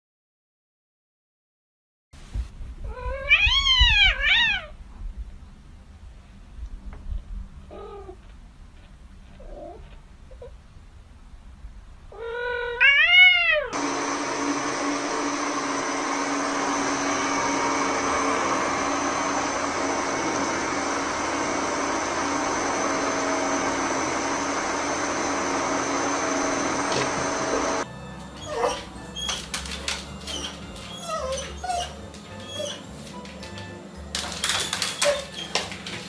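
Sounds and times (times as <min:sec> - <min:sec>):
cat meowing: 0:02.9 - 0:04.8, 0:12.1 - 0:13.8
stand mixer motor whirring: 0:13.8 - 0:27.9.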